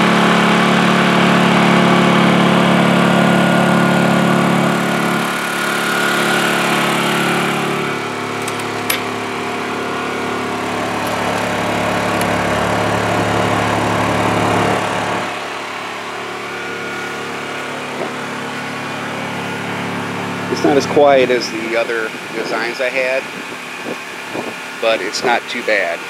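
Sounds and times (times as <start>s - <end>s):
generator engine running: 0.0s - 26.0s
latch clicks: 8.4s - 9.1s.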